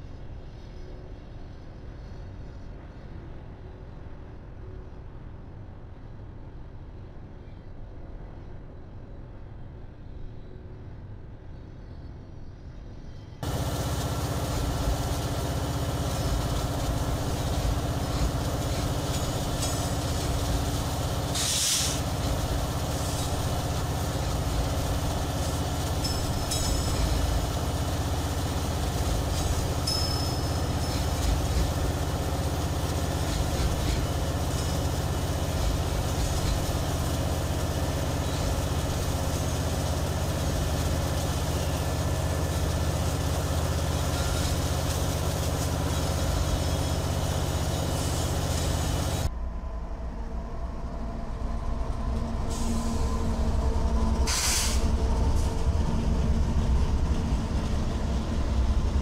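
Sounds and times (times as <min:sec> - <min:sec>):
diesel locomotive engine running: 0:13.1 - 0:59.0
brief hiss: 0:21.4 - 0:22.0, 0:54.3 - 0:55.5
faint low rumble: 0:49.3 - 0:59.0.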